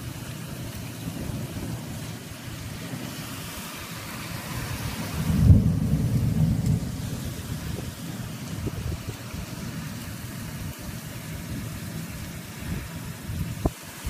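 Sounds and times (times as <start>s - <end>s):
thunder cracking and rumbling: 0.0s - 13.7s
heavy rain: 0.0s - 14.0s.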